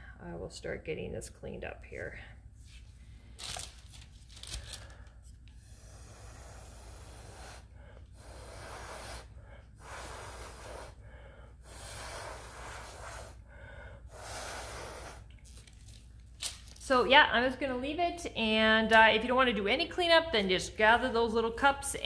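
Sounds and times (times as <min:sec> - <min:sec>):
person blowing puffs of breath: 0:04.5 - 0:15.3.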